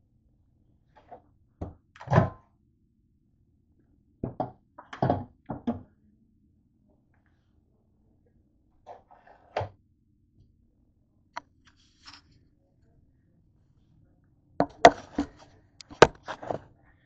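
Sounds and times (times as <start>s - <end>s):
plastic container knocking: 4.2s - 5.8s, 15.9s - 16.6s.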